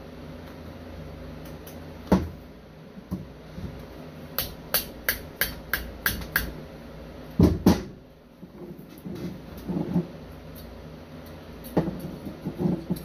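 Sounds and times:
mallet tapping metal: 4.4s - 6.6s.

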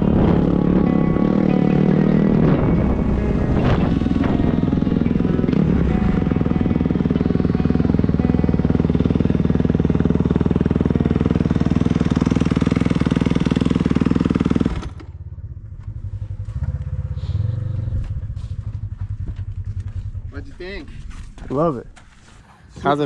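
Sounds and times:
mini bike engine running: 0.0s - 17.3s.

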